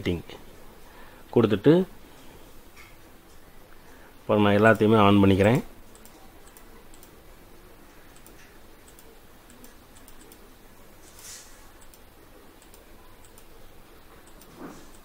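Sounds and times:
low steady hiss: 0.0s - 15.0s
computer mouse clicks: 5.9s - 7.2s, 8.1s - 10.5s, 11.8s - 13.6s, 14.2s - 15.0s.

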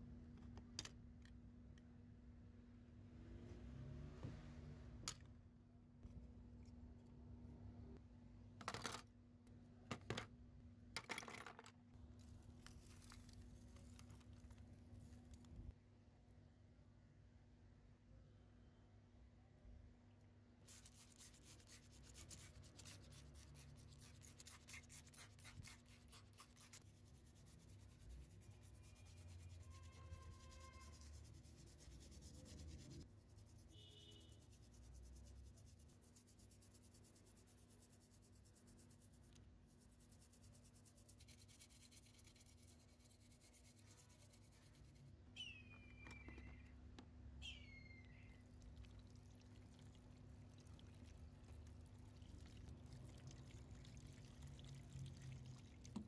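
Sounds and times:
toothbrush scrubbing metal parts: 20.7s - 33.5s
short falling squeaks: 45.4s - 46.8s.

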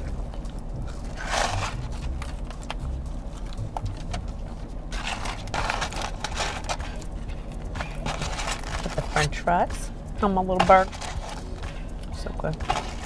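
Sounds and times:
low hum inside a car: 0.0s - 13.0s
paper packaging crinkling: 4.9s - 7.0s, 7.8s - 9.3s.

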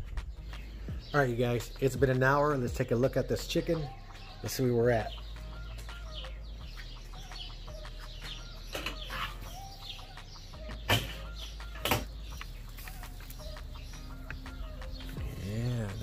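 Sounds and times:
birds calling: 0.0s - 16.0s
metal lid clanking: 8.7s - 9.5s, 10.9s - 12.1s.

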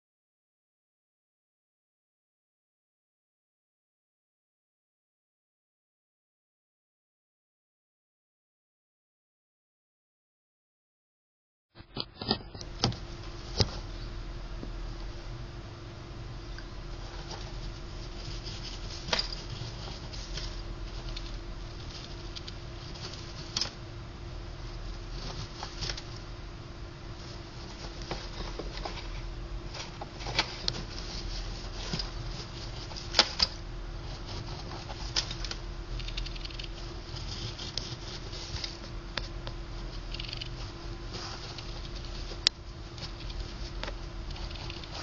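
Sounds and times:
steady hum: 11.8s - 45.0s
gerbil scrabbling and nibbling: 40.1s - 43.7s, 44.3s - 45.0s.

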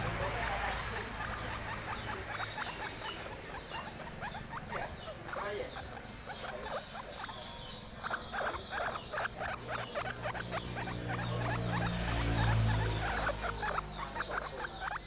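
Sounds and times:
guinea pig chewing leaves: 0.4s - 15.0s.

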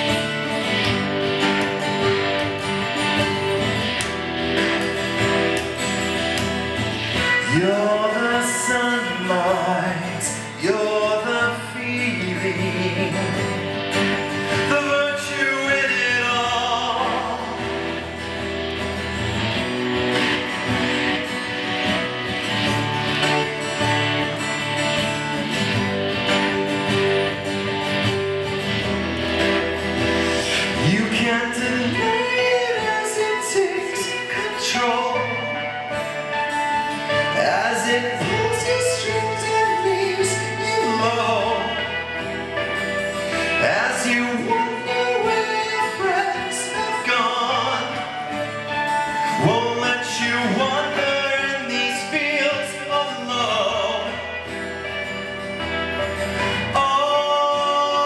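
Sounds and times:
acoustic guitar playing: 0.0s - 58.0s
man singing: 6.6s - 19.2s, 30.0s - 58.0s.

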